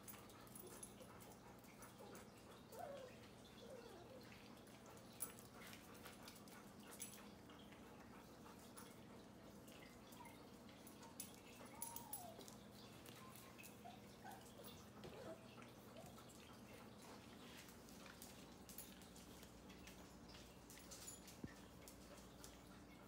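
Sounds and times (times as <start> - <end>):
puppy whimpers: 2.7 - 4.3.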